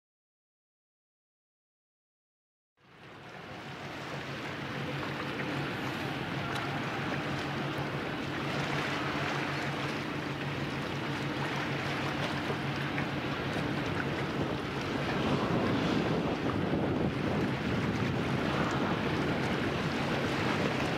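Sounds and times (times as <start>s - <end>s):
boat engine droning: 2.8s - 20.9s
water washing: 2.9s - 20.9s
wind noise: 10.8s - 20.9s.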